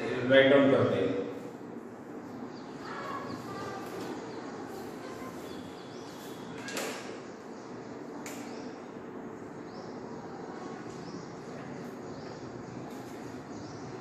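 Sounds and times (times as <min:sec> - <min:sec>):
room hiss and hum: 0:00.0 - 0:14.0.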